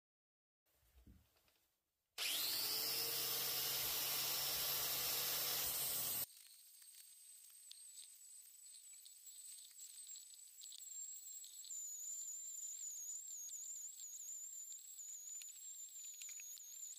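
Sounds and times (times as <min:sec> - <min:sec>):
angle grinder motor whine: 0:02.2 - 0:06.3, 0:10.0 - 0:16.9
faint high whine: 0:02.2 - 0:16.9.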